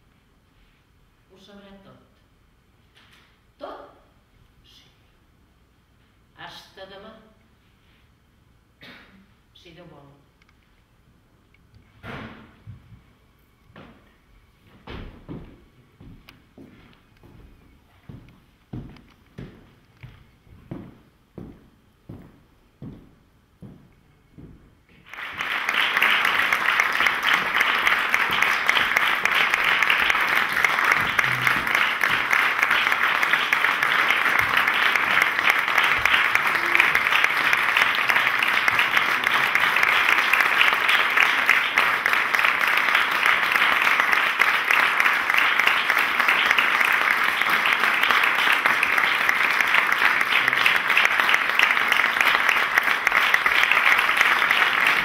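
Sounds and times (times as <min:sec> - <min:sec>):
audience applauding: 0:25.0 - 0:55.0.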